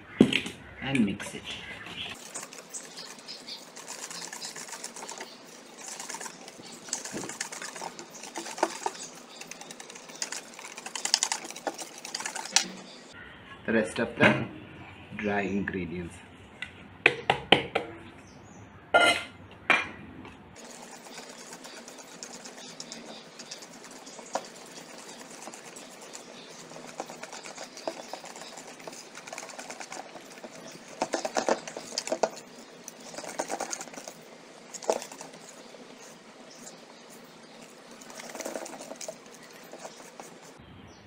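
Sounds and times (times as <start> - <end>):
whisk beating batter in metal bowl: 2.2 - 12.6, 20.6 - 40.6.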